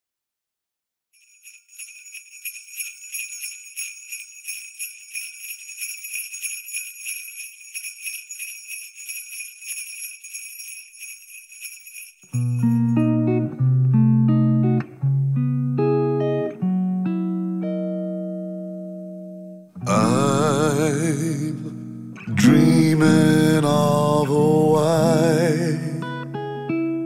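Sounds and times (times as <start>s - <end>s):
sleigh bells shaken: 1.2s - 13.1s
loud guitar: 12.4s - 27.0s.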